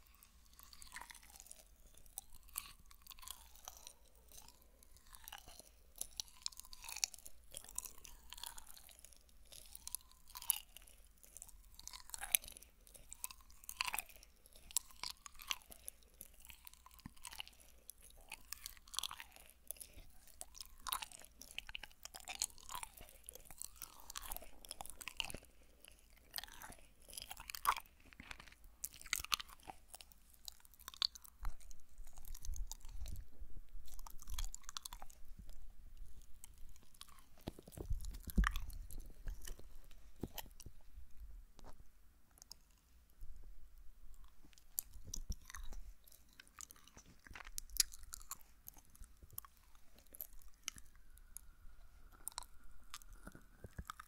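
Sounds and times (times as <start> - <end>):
wet chewing mouth sounds: 0.0 - 40.9, 44.1 - 54.0.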